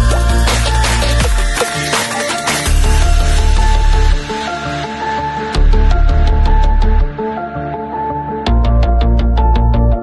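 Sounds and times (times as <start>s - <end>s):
electronic music with deep bass: 0.0s - 10.0s.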